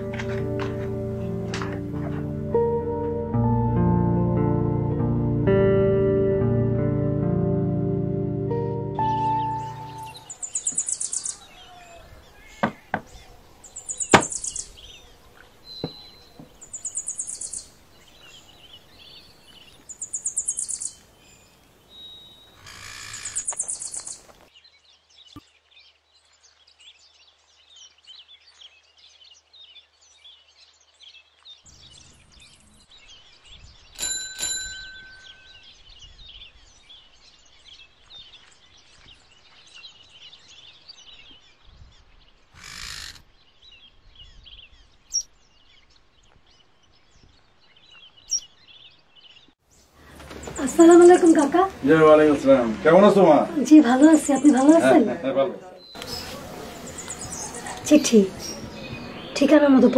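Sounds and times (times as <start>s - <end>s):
birds trilling: 9.0s - 24.4s, 31.8s - 59.9s
sharp knocks: 12.6s - 13.1s, 14.1s - 14.4s
thump: 14.1s - 14.4s.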